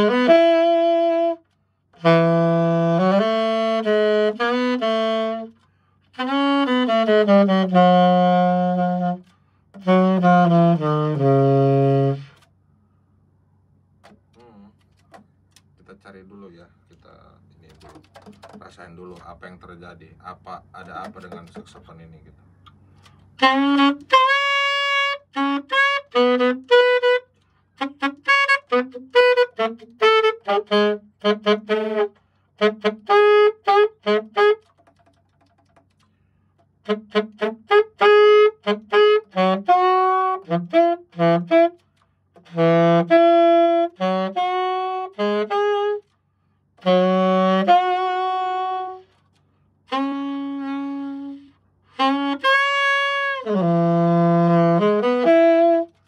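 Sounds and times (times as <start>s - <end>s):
alto saxophone notes: 0.0s - 12.5s, 23.0s - 35.1s, 36.8s - 56.0s.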